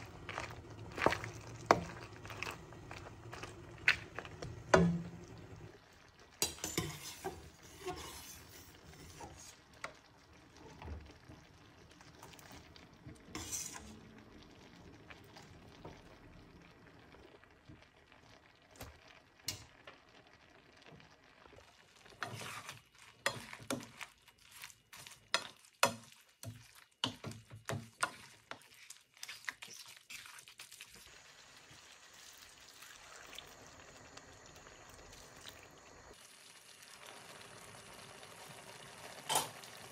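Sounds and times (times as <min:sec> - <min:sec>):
sauce simmering and sizzling: 0:00.0 - 0:39.9.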